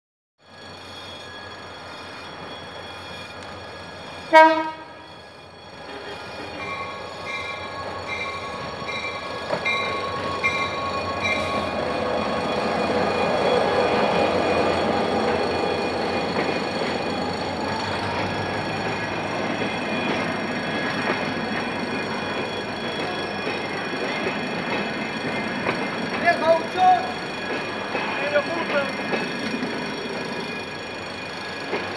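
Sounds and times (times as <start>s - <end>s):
train wheels: 0.5s - 31.9s
locomotive engine: 1.1s - 31.9s
locomotive horn toot: 4.3s - 5.0s.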